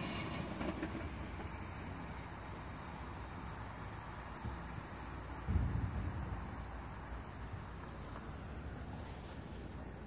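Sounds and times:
wind rumbling on microphone: 0:04.4 - 0:10.0.

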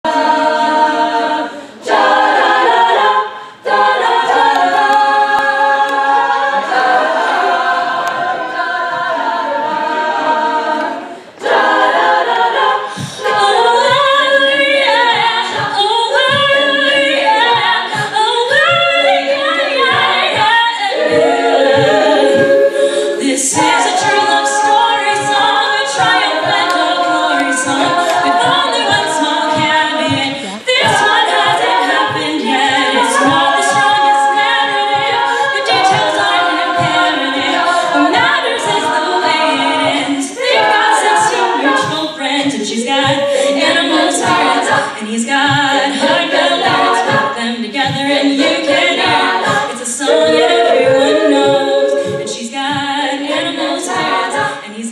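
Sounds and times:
vocal percussion beat: 0:00.0 - 0:54.9
women singing in harmony: 0:00.0 - 0:54.9.

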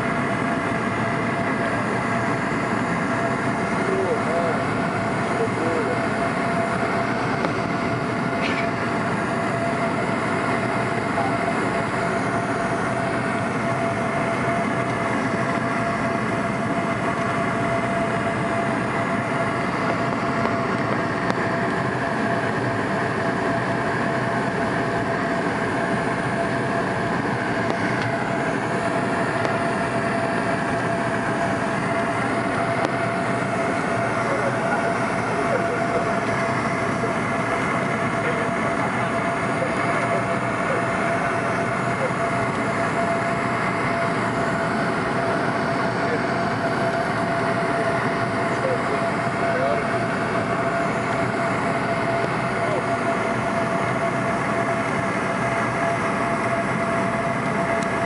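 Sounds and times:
airliner cabin engine rush: 0:00.0 - 0:58.0
steady hum tone: 0:00.0 - 0:58.0.

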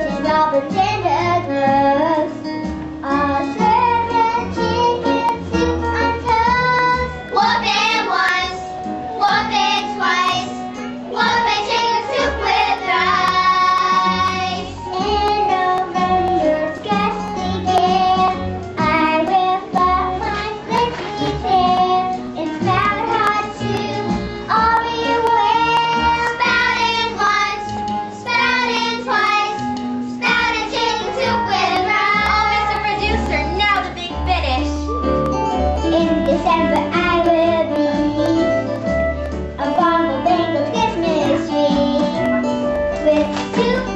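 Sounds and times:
instrumental accompaniment: 0:00.0 - 0:43.9
child singing: 0:03.0 - 0:29.6, 0:35.8 - 0:38.2, 0:39.6 - 0:42.3, 0:43.0 - 0:43.9.

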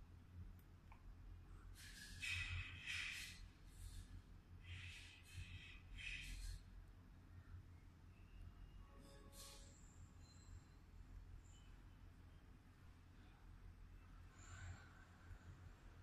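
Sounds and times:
low steady hum: 0:00.0 - 0:16.0
soft breathing: 0:01.5 - 0:07.0, 0:13.0 - 0:16.0.

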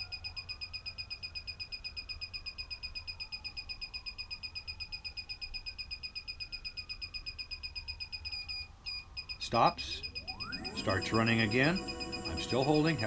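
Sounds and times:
rapid high-pitched beeping: 0:09.2 - 0:13.0.

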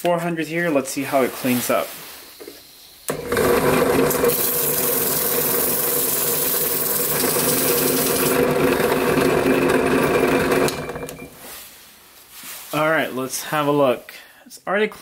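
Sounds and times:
drill press motor running: 0:03.1 - 0:11.3.

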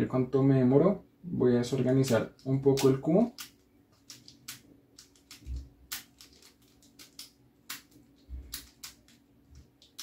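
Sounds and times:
plastic puzzle cube clicks: 0:02.8 - 0:09.2.

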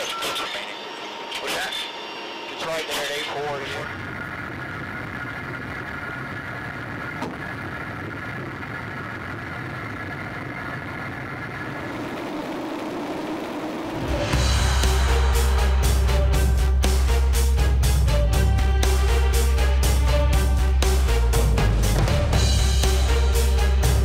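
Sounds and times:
turboprop engines droning: 0:00.0 - 0:24.0
music: 0:14.0 - 0:24.0.

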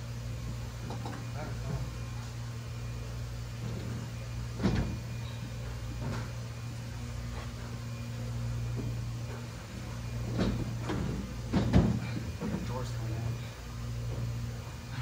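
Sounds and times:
steady low hum: 0:00.0 - 0:15.0
refrigerator knocking and bumping: 0:04.6 - 0:05.0, 0:10.2 - 0:12.8.

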